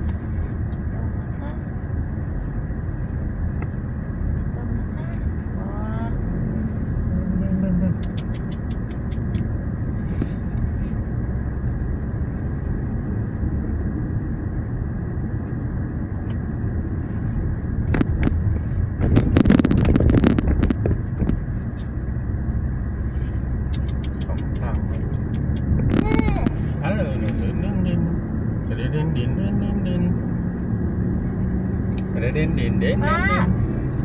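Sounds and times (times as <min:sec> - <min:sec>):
engine and tyre rumble: 0:00.0 - 0:34.0.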